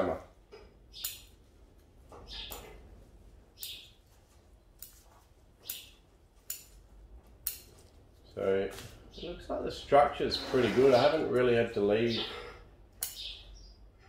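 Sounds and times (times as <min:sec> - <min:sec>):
scissors snipping shoots: 0:05.6 - 0:06.8.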